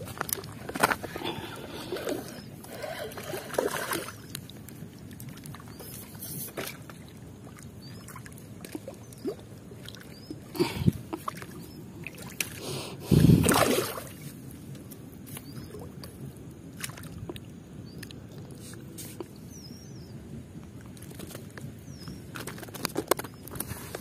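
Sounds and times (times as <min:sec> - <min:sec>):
water sloshing: 0:00.0 - 0:19.4
fish splashing in water: 0:00.2 - 0:04.4, 0:05.2 - 0:14.3.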